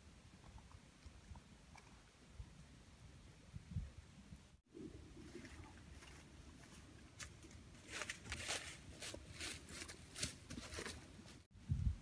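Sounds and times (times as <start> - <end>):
footsteps in dry leaves: 6.6 - 11.5.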